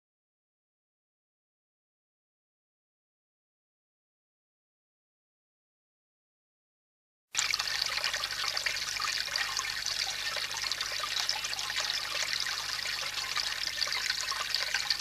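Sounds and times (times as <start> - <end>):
water trickling: 7.4 - 15.0.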